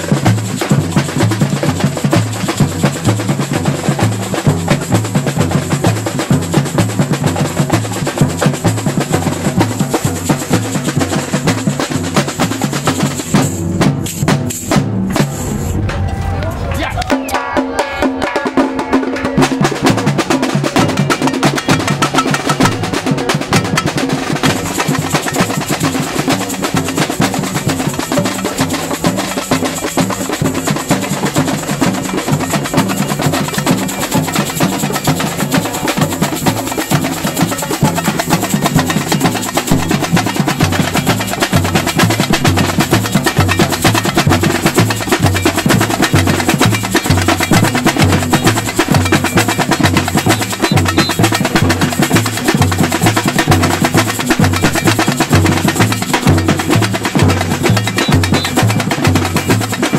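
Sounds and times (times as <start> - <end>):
metal shaker: 0.0 - 15.8, 19.6 - 59.9
snare drums: 0.0 - 59.9
bass drums beating: 11.7 - 27.8, 31.4 - 59.8.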